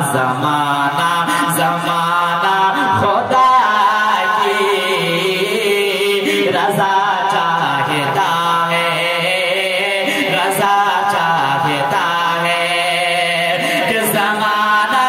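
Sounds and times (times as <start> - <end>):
man chanting into a microphone: 0.0 - 15.0.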